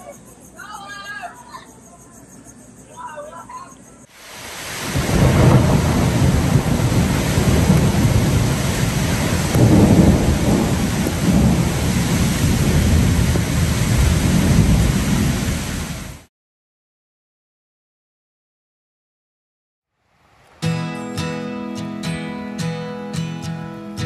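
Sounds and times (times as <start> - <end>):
wind buffeting microphone: 4.3 - 16.2.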